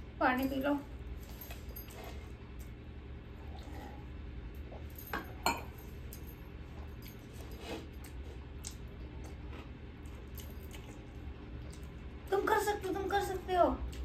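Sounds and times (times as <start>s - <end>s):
steady low hum: 0.0s - 14.0s
plates clinking: 5.1s - 5.8s.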